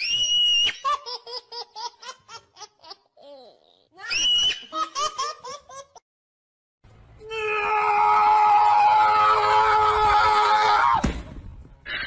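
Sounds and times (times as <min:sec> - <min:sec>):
child laughing: 0:00.8 - 0:06.0
child's high squeal: 0:04.0 - 0:04.6.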